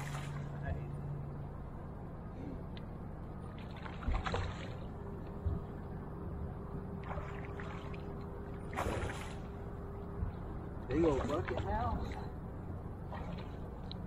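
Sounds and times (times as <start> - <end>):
faint steady hum: 0.0 - 14.0
fish splashing at water surface: 7.0 - 9.6.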